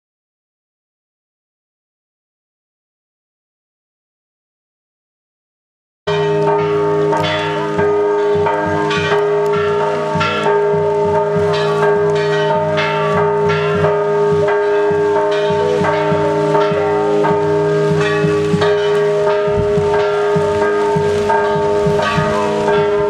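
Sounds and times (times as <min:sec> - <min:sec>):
church bells pealing: 0:06.1 - 0:23.0.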